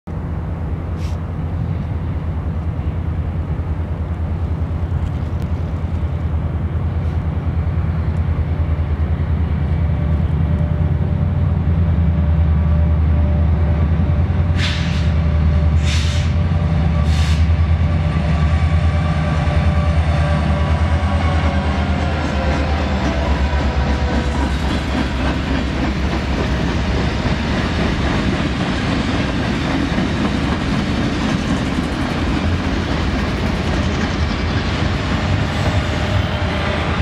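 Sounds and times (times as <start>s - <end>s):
diesel locomotive engine rumble: 0.1s - 37.0s
short air hisses: 1.0s - 1.3s, 14.6s - 15.2s, 15.8s - 16.4s, 17.1s - 17.5s.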